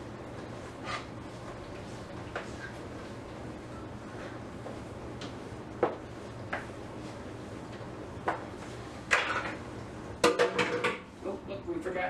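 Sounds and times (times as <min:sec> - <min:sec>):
dishes knocking and clinking: 0:10.2 - 0:11.1.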